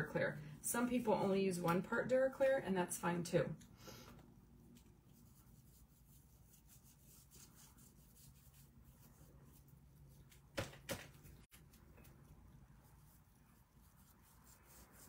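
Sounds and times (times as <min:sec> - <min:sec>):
paintbrush rubbing on wood: 0:05.0 - 0:10.3, 0:12.1 - 0:15.0.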